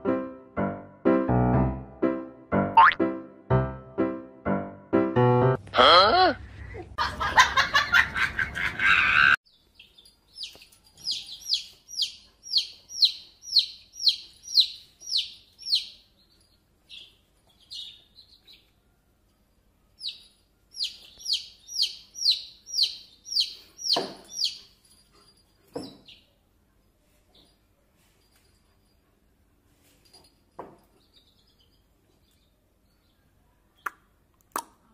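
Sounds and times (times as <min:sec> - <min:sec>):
music: 0:00.0 - 0:05.6
voice: 0:05.7 - 0:06.9
chick peeping: 0:10.4 - 0:16.0, 0:20.8 - 0:24.6.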